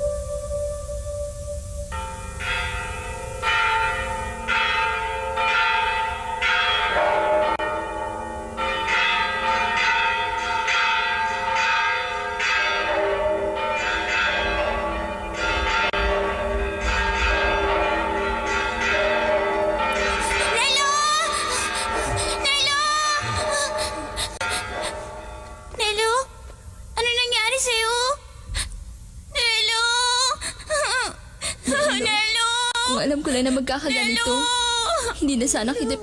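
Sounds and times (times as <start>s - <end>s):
church bells ringing: 0.0s - 25.9s.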